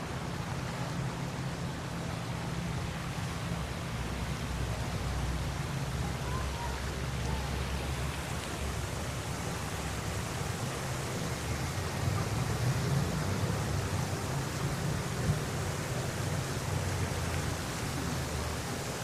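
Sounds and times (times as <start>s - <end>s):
street hiss: 0.0s - 19.0s
traffic rumble: 0.0s - 19.0s.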